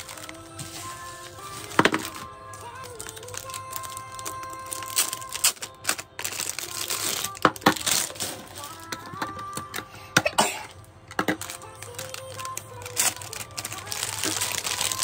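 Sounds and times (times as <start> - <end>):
plastic bag crinkling: 0.0 - 9.8, 11.1 - 15.0
plastic box clicks and knocks: 1.8 - 2.2, 11.1 - 11.5.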